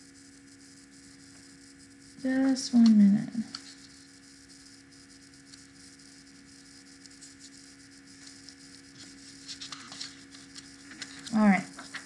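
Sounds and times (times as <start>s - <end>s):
low electrical hum: 0.0s - 12.0s
faint clicks and rustles: 6.6s - 12.0s.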